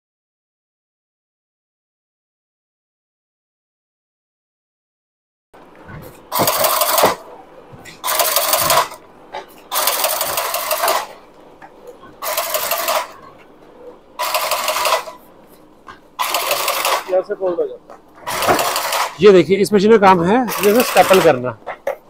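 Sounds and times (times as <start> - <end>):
stitching machine stapling cardboard: 6.3 - 7.2, 8.0 - 9.0, 9.7 - 11.2, 16.2 - 17.2, 18.2 - 19.2, 20.5 - 21.4.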